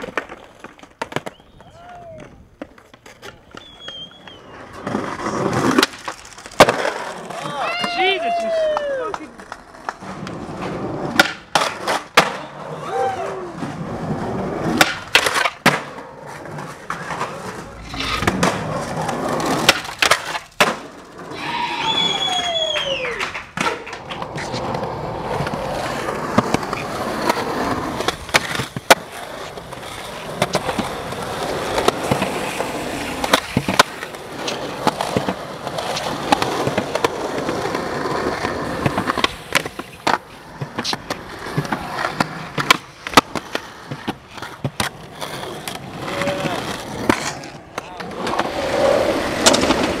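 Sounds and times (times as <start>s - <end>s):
skateboard clacks: 0.0s - 50.0s
skateboard grinding on ledges: 0.0s - 50.0s
skateboard wheels rolling on concrete: 0.0s - 50.0s
person yelling: 1.6s - 2.4s, 7.4s - 9.3s, 12.8s - 13.6s, 21.3s - 23.2s, 46.0s - 46.8s.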